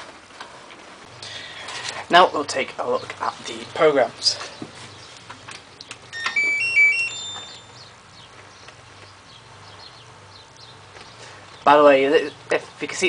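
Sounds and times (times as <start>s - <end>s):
washing machine electronic tune: 6.1s - 7.8s.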